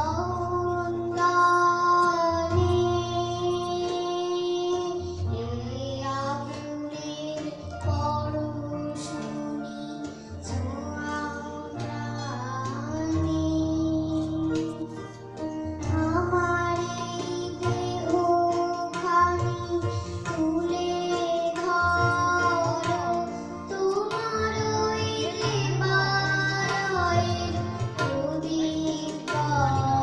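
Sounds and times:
girl singing into microphone: 0.0s - 30.0s
hand drums: 10.5s - 30.0s.

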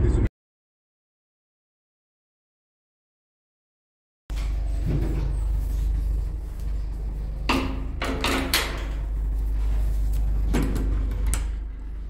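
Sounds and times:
steady low rumble: 4.3s - 12.0s.

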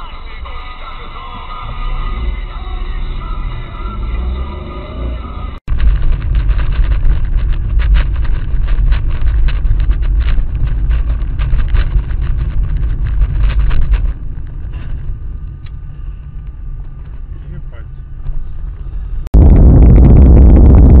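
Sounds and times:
vehicle rumbling: 0.0s - 21.0s
rapid clicks and knocks: 5.7s - 15.0s.

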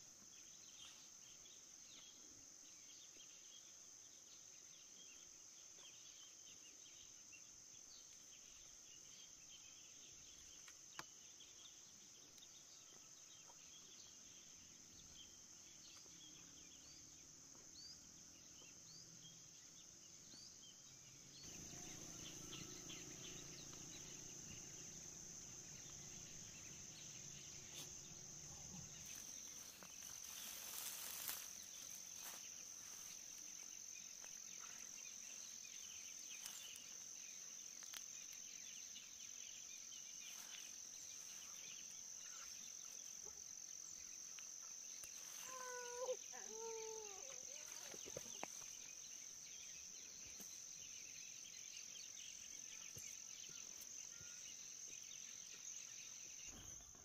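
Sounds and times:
insects chirring: 0.0s - 57.0s
faint rustling: 25.7s - 33.2s.

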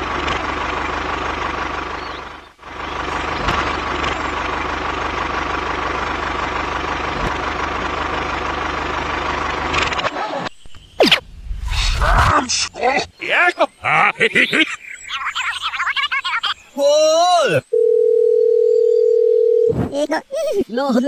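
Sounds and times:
tractor engine running: 0.0s - 10.2s.

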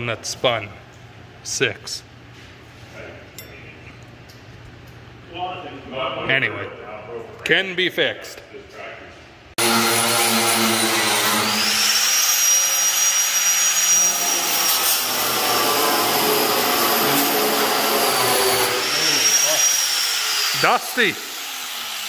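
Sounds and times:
grinder grinding metal: 9.6s - 22.0s.

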